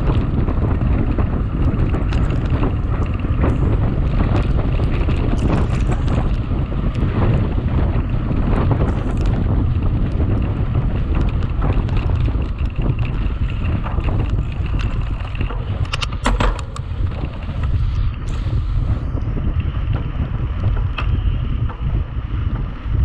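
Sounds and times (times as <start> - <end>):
bike clicks and rattles: 0.0 - 23.0
tyres rumbling: 0.0 - 23.0
wind buffeting microphone: 0.0 - 23.0.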